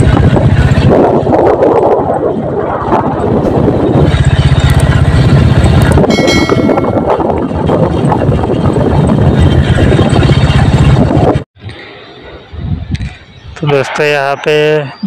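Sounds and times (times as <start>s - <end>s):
vehicle engine and road noise: 0.0s - 15.0s
wind buffeting microphone: 0.0s - 15.0s
faint high tone: 6.1s - 7.2s.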